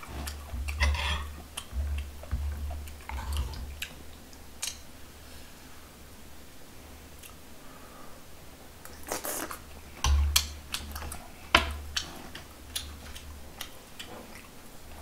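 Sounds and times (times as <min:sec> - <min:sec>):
utensils and leaves handled: 0:00.0 - 0:04.1, 0:10.0 - 0:13.6
mouth eating noises: 0:00.0 - 0:04.8, 0:08.8 - 0:15.0.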